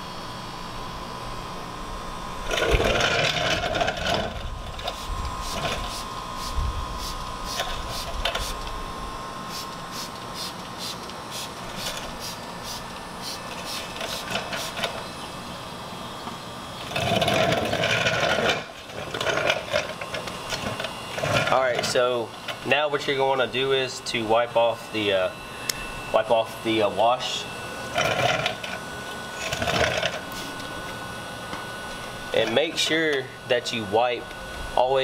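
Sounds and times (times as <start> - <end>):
spray bottle spritzing: 9.5 - 14.8.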